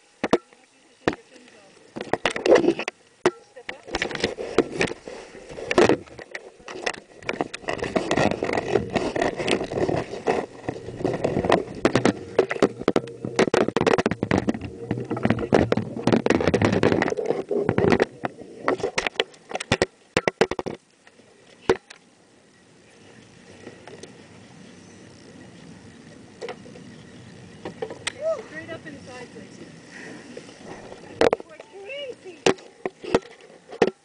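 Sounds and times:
camera handling knocks and rubs: 5.6s - 20.8s.

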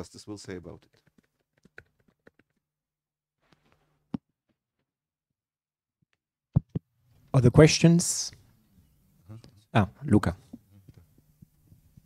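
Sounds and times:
microphone handling thumps: 6.5s - 6.9s.

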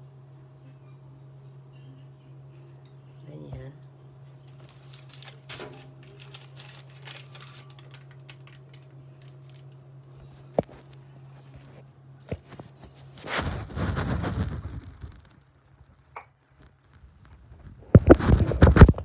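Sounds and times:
steady low hum: 0.0s - 19.0s
baking paper rustling: 4.4s - 15.9s, 16.6s - 19.0s.

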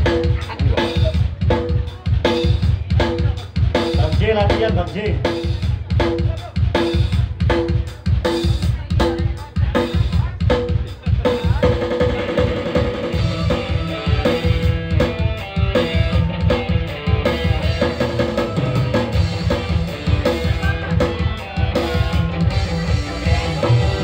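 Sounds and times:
electric guitar: 11.3s - 24.0s.

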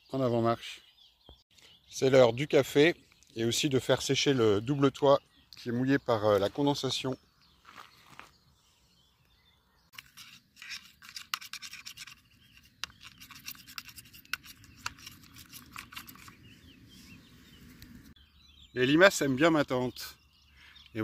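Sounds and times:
spoon stirring in metal mug: 10.0s - 16.4s.

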